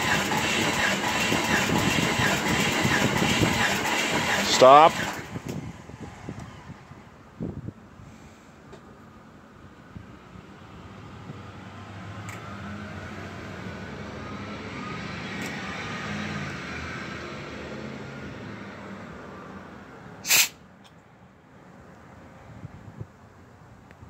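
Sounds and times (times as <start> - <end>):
vehicle passing: 10.4 - 20.2
short loud hiss: 20.2 - 20.6.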